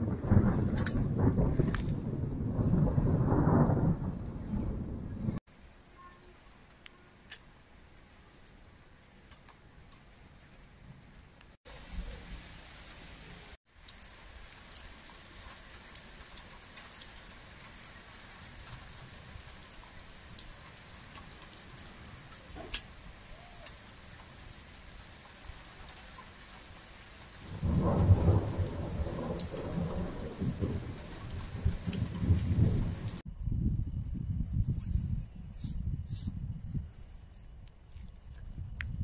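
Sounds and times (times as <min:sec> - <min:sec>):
thunder rumbling: 0:00.0 - 0:05.4, 0:27.4 - 0:36.6
steady rain falling: 0:00.0 - 0:33.3
raindrops ticking on a surface: 0:00.1 - 0:02.5, 0:08.2 - 0:12.8, 0:13.7 - 0:33.3.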